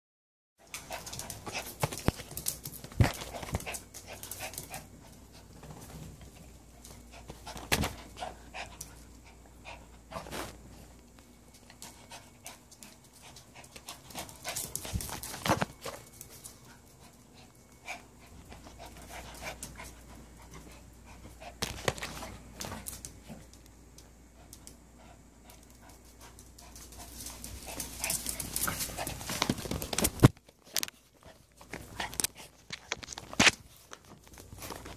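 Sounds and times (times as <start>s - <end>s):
dogs panting excitedly: 0.6s - 10.4s, 11.6s - 23.4s, 24.3s - 30.0s.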